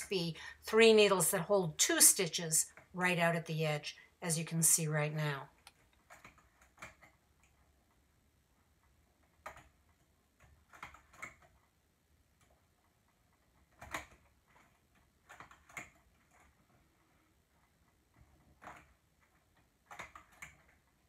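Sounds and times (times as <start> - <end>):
metallic clicks of knitting machine needles: 13.6 - 16.6.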